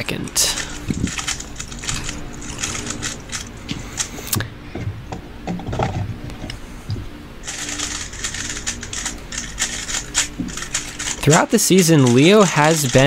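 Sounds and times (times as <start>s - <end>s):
rapid cube clicks: 0.6s - 4.1s, 7.5s - 13.0s.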